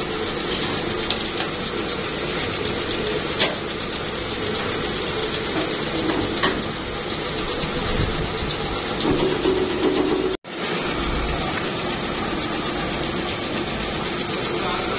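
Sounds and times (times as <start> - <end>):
machine mechanical drone: 0.0 - 14.9.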